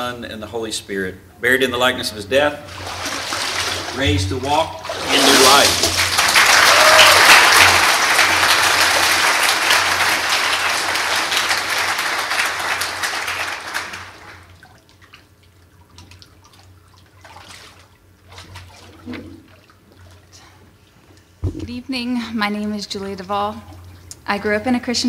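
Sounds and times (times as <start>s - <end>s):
congregation applauding: 5.0s - 14.5s
faint water movement: 14.0s - 25.0s.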